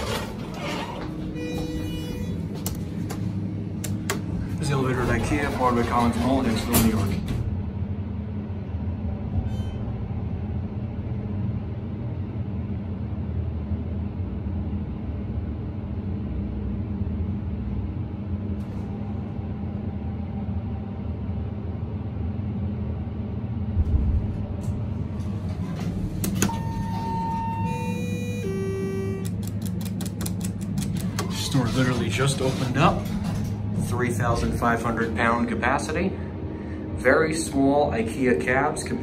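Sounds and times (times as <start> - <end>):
elevator stopping thump: 0.0 - 7.6, 23.8 - 29.4
elevator car humming: 0.0 - 39.0.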